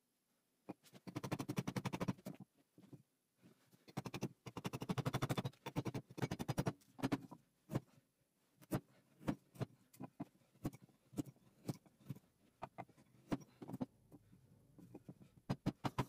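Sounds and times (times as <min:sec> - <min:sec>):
carving tool scraping wood: 0:03.8 - 0:08.0
sharp carving cuts in wood: 0:03.9 - 0:08.0.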